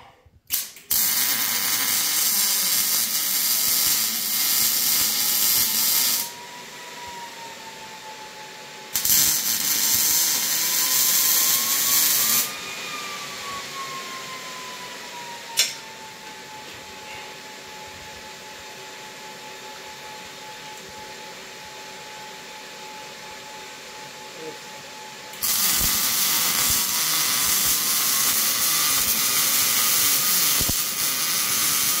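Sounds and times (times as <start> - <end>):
welding arc sizzle: 0.5 - 6.4, 8.9 - 12.5, 25.3 - 32.0.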